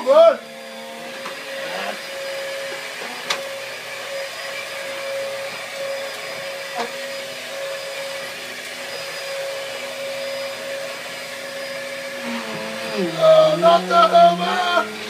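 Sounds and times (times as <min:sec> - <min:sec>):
vacuum cleaner whining: 0:00.0 - 0:15.0.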